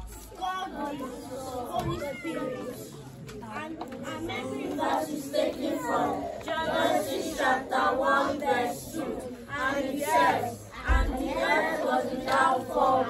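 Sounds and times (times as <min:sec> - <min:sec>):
children singing unaccompanied: 0:03.8 - 0:13.0.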